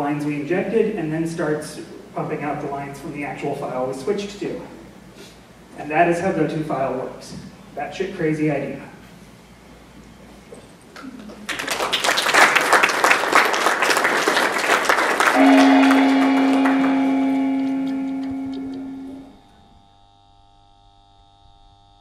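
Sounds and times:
audience applauding: 10.9 - 19.3
loud held electronic tone: 15.2 - 22.0
faint sustained chord: 15.3 - 21.8.

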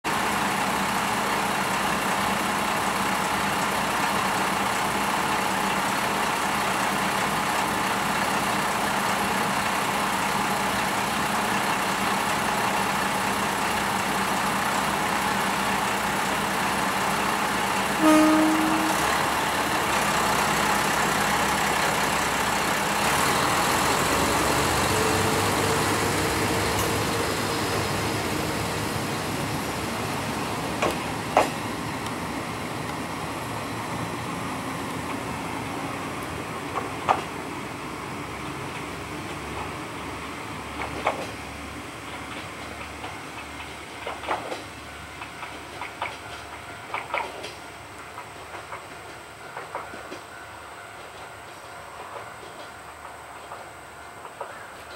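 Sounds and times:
diesel railcar engines: 0.0 - 54.9
train horn toot: 18.0 - 19.2.

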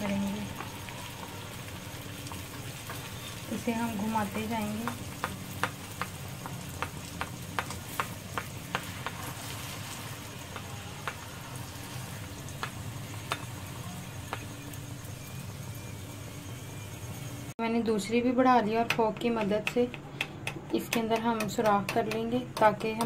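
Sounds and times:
oil ticking and popping: 0.0 - 16.2
hot oil sizzling: 0.0 - 17.6.

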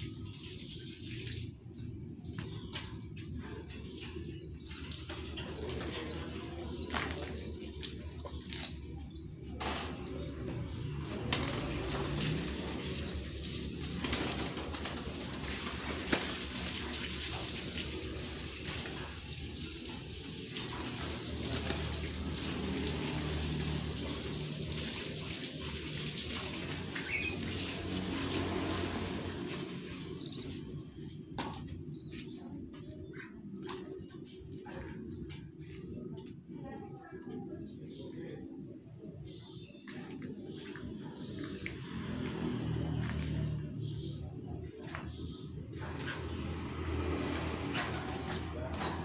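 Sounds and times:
garden hose spraying water: 0.0 - 30.7, 45.8 - 49.0
birds fluttering wings: 2.2 - 30.3.

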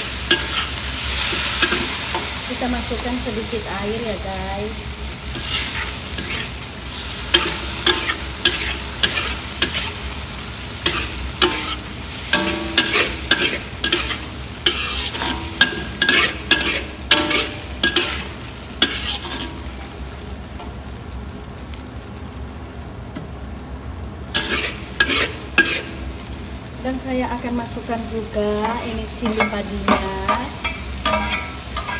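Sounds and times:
spatula scraping a wok: 0.0 - 2.5, 5.2 - 19.8, 24.4 - 26.2, 28.5 - 31.9
food sizzling: 0.0 - 31.9.

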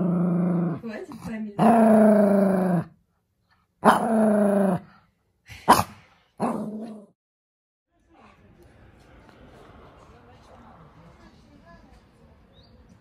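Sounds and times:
dog barking grumbling: 3.8 - 4.8, 5.7 - 7.1.

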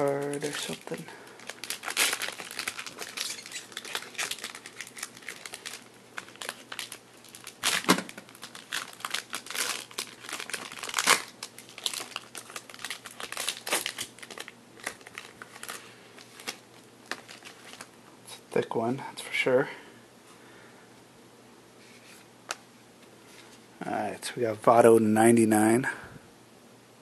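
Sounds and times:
foil pack crinkling: 0.0 - 18.0.

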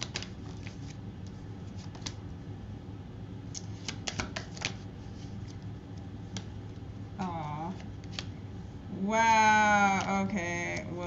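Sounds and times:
cards snapping and clicking: 0.0 - 0.7, 1.8 - 2.2, 3.5 - 4.8, 8.0 - 8.4
low steady hum: 0.0 - 11.0.

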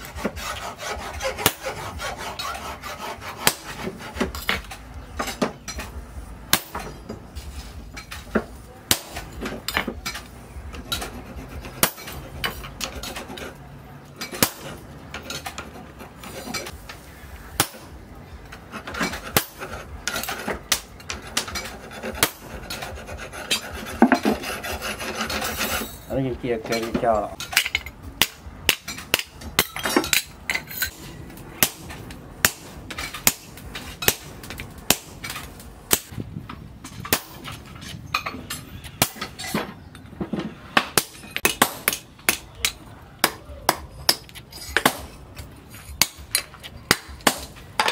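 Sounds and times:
scraping rubbing: 18.6 - 27.0.

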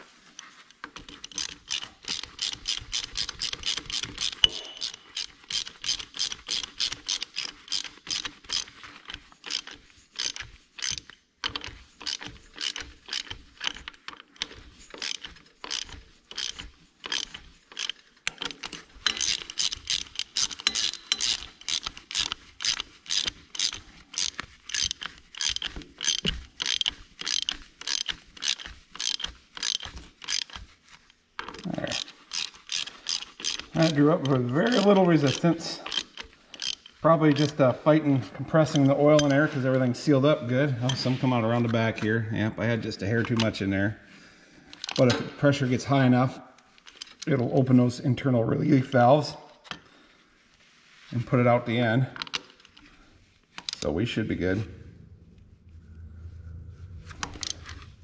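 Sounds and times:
hand ratchet clicking: 0.7 - 37.7, 44.7 - 45.2, 52.2 - 52.9, 53.5 - 53.9.

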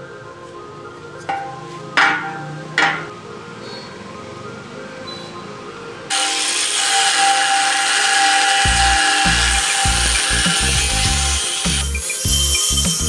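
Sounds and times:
angle grinder cutting steel: 6.1 - 13.0.

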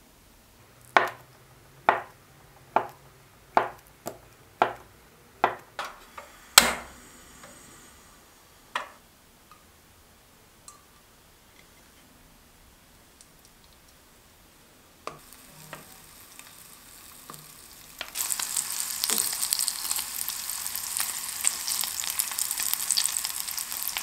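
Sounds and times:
faint gas burner hiss: 0.0 - 24.0
gas stove igniter click: 5.8 - 7.6.

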